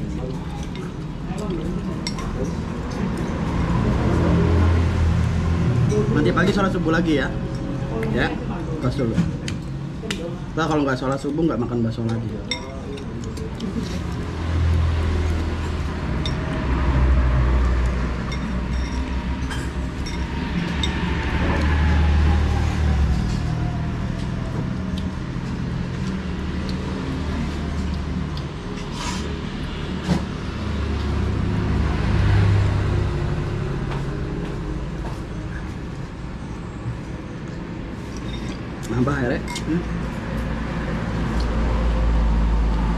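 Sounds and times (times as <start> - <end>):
road traffic passing: 0.0 - 42.9
spoons and glasses clinking: 18.3 - 21.0.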